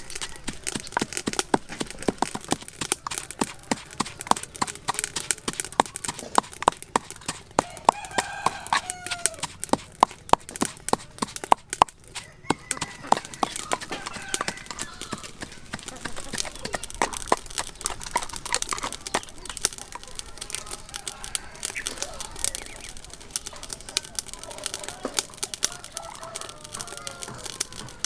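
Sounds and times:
pestle pounding in wooden mortar: 0.0s - 20.2s.

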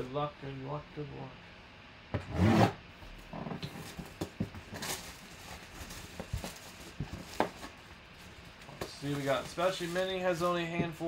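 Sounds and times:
plastic wrap crinkling: 3.7s - 10.6s.

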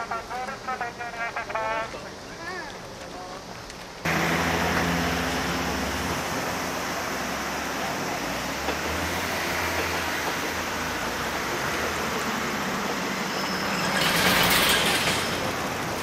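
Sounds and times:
electric train passing: 4.1s - 16.0s.

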